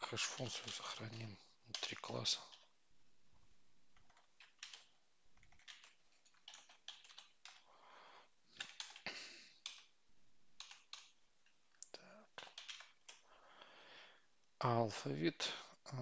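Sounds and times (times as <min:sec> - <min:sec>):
keyboard typing: 0:00.0 - 0:02.8, 0:03.9 - 0:07.7, 0:08.6 - 0:11.2, 0:12.4 - 0:13.3.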